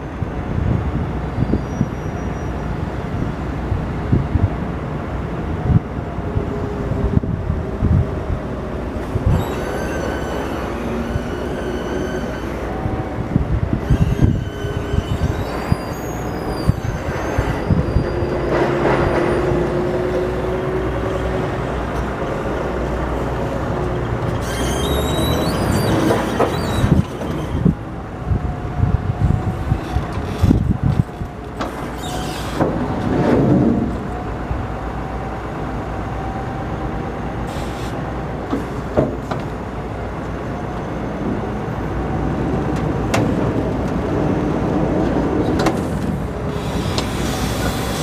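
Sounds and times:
forklift engine rumble: 0:03.4 - 0:48.0
high squeals: 0:09.1 - 0:13.2, 0:13.8 - 0:19.5, 0:24.3 - 0:27.8, 0:31.8 - 0:32.6.

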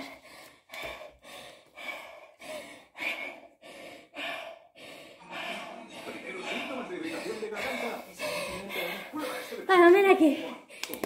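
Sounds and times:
woman breathing heavily: 0:00.0 - 0:11.0.

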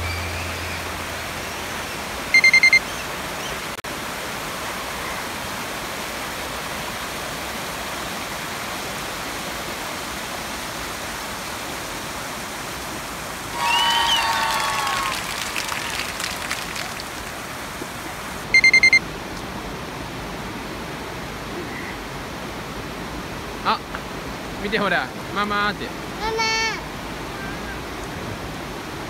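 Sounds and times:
shallow river over rocks: 0:00.0 - 0:29.0
high electronic beeps: 0:02.3 - 0:02.9, 0:18.5 - 0:19.0.

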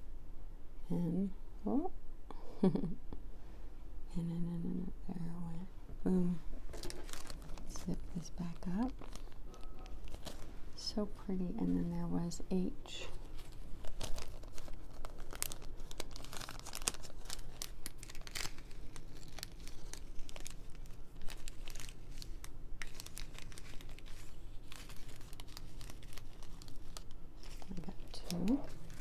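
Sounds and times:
plastic bag crinkling: 0:06.6 - 0:10.9, 0:13.0 - 0:29.0.

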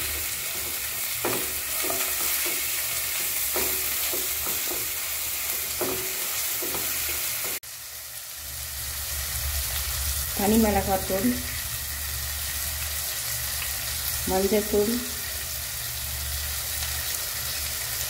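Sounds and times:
spatula scraping a pan: 0:00.0 - 0:07.6
vegetables sizzling in hot oil: 0:00.0 - 0:18.0.

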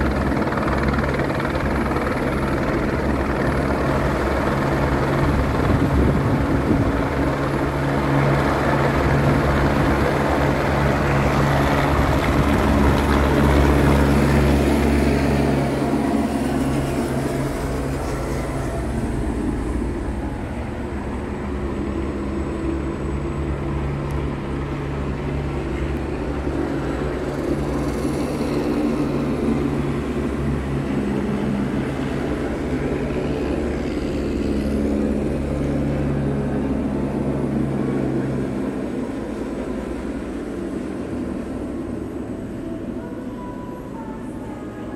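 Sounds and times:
helicopters flying overhead: 0:00.0 - 0:44.9.

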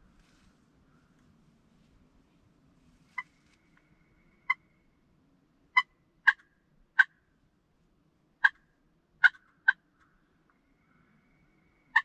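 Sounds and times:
turkey call clucks: 0:05.7 - 0:07.2, 0:08.4 - 0:08.6, 0:09.2 - 0:09.8.

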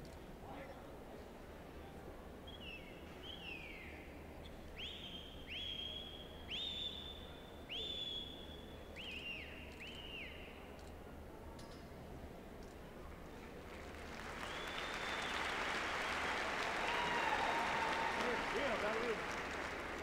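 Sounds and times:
whistle commands: 0:04.8 - 0:10.6, 0:14.4 - 0:16.3.

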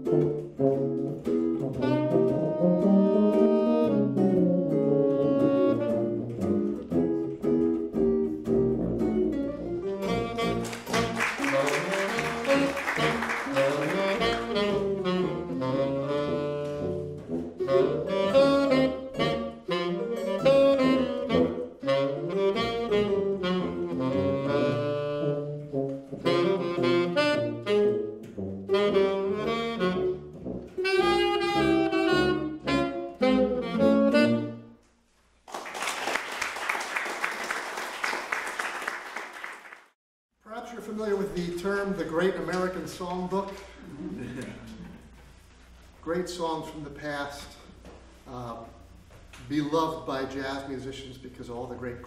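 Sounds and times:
jazz trio playing blues: 0:00.0 - 0:34.6
tuba bass line: 0:00.0 - 0:34.7
saxophone melody: 0:00.0 - 0:34.8
audience applauding: 0:10.4 - 0:14.8, 0:35.4 - 0:40.0.

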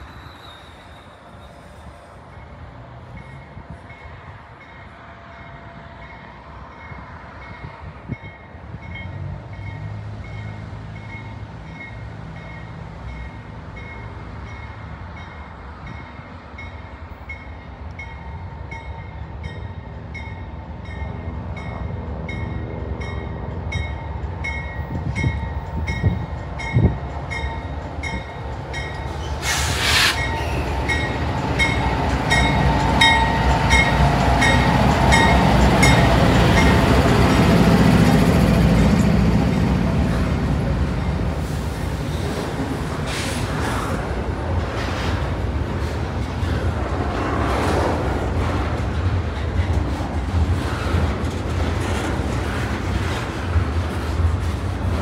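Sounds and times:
train bell ringing: 0:00.0 - 0:29.3, 0:30.2 - 0:37.3
train rumble: 0:00.0 - 0:55.0
loud hiss: 0:29.4 - 0:30.7.

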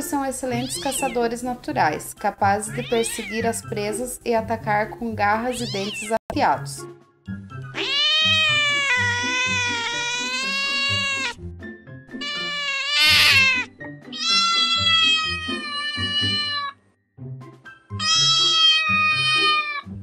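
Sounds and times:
background music: 0:00.0 - 0:20.0
cat meowing: 0:00.5 - 0:01.3, 0:02.7 - 0:03.5, 0:05.5 - 0:06.2, 0:07.7 - 0:11.4, 0:12.2 - 0:16.8, 0:18.0 - 0:19.9.

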